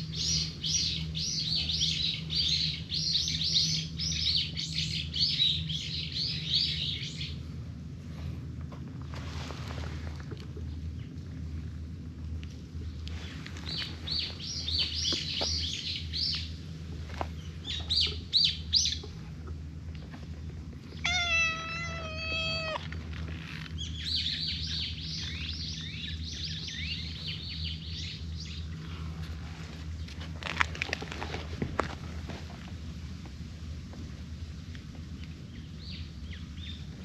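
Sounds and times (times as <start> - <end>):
small birds chirping: 0.0 - 7.5, 12.5 - 30.3, 35.2 - 37.0
cat meowing: 21.0 - 23.0.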